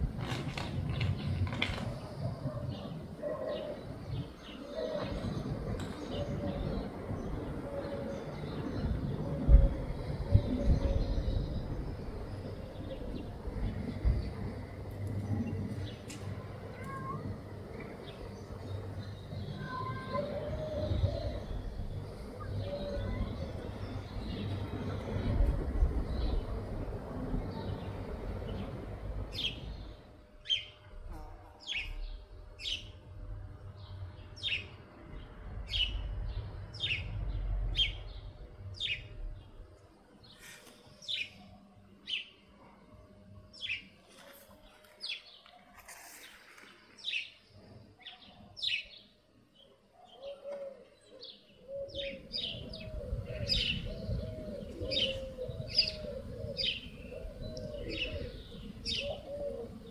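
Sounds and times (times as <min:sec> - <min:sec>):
low background rumble: 0:00.0 - 0:40.3
dove cooing: 0:19.9 - 0:23.8, 0:50.0 - 0:59.9.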